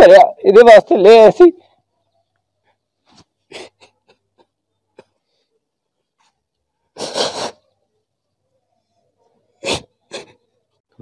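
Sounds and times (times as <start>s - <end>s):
man sobbing: 3.5s - 5.1s
man sniffing: 7.0s - 7.7s.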